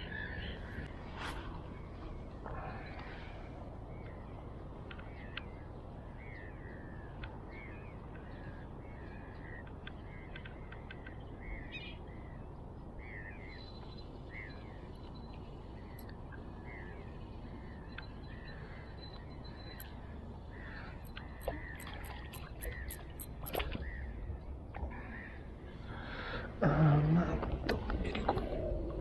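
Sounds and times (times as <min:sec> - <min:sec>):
bird calling: 0:15.9 - 0:24.3.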